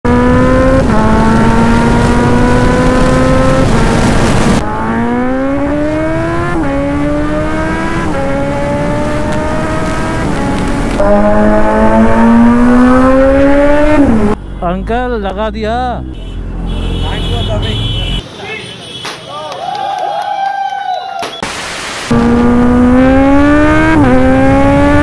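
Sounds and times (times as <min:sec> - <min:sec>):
motorcycle engine accelerating: 0:00.0 - 0:14.4, 0:22.1 - 0:25.0.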